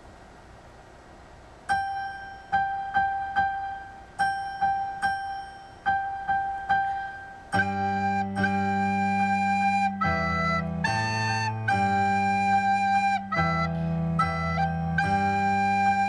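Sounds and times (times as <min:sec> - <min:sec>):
repeated high piano notes: 0:01.7 - 0:16.0
soprano recorder playing: 0:05.9 - 0:16.0.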